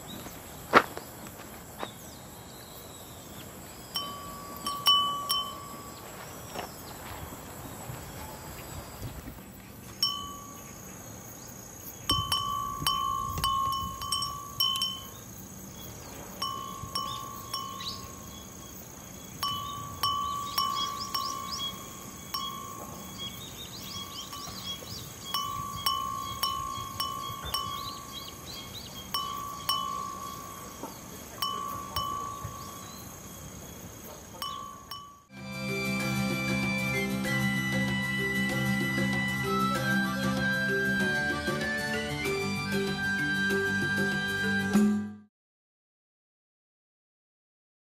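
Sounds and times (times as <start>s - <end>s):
glass wind chime tinkling: 3.9s - 6.2s, 10.0s - 11.0s, 12.0s - 15.4s, 16.4s - 18.6s, 19.4s - 35.3s.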